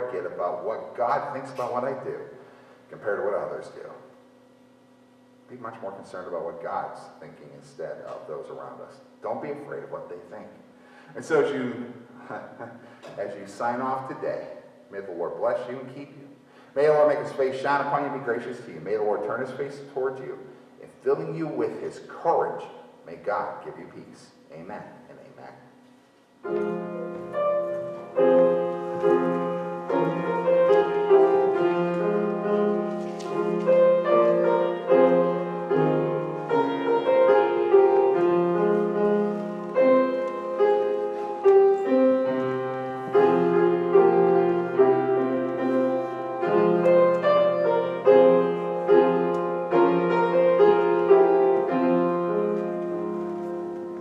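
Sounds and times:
organ chords over held bass: 0:26.4 - 0:54.0.

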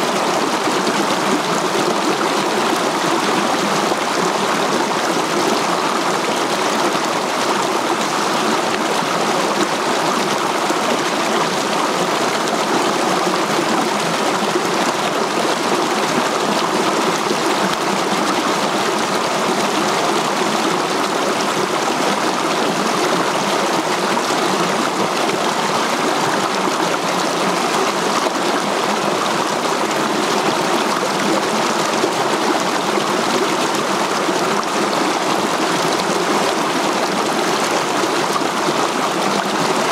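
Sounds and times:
stream rushing over boulders: 0:00.0 - 0:39.9.

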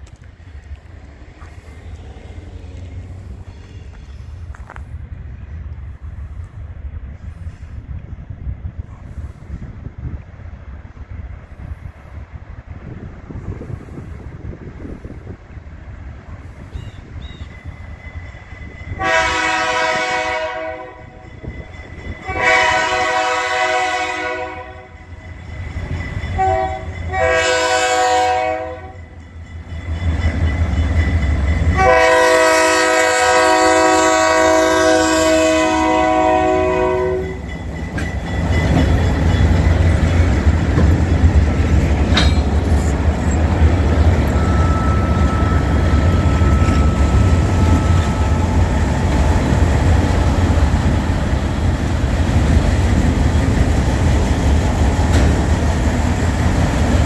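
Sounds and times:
locomotive engine rumble: 0:00.0 - 0:57.0
wheels clacking on rails: 0:08.7 - 0:57.0
locomotive air horn blasts: 0:18.9 - 0:21.2, 0:22.2 - 0:25.0, 0:26.4 - 0:29.0, 0:31.8 - 0:37.4, 0:44.3 - 0:49.4.

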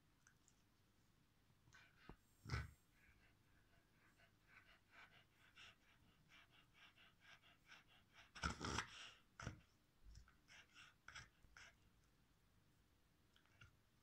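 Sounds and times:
dog panting: 0:01.7 - 0:12.0.

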